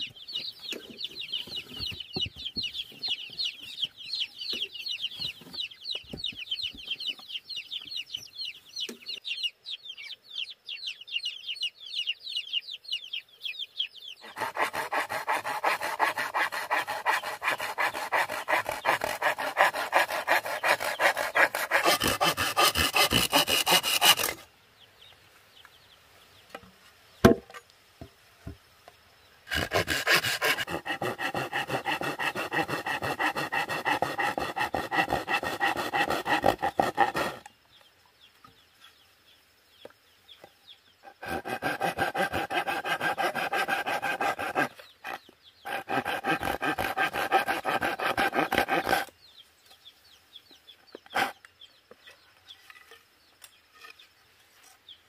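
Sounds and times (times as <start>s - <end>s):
saw rasping through bamboo: 14.2s - 24.4s, 29.5s - 37.5s, 41.1s - 49.1s.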